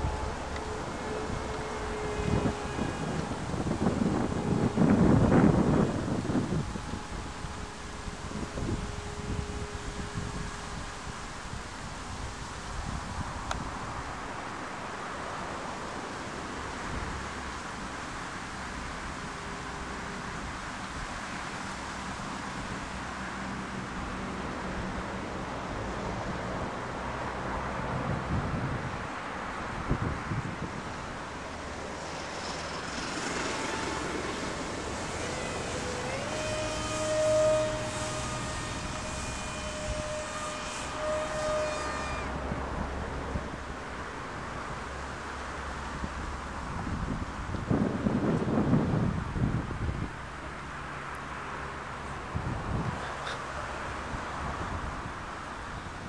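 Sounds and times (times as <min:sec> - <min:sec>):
motor and propeller whining: 0:00.0 - 0:13.6, 0:30.3 - 0:46.4
steady wind hiss: 0:00.0 - 0:56.0.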